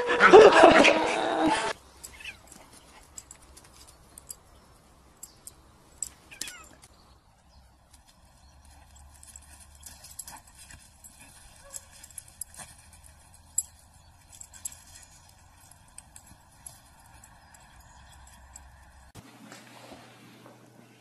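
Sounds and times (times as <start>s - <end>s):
animals scuffling in dry leaves: 6.2s - 20.2s.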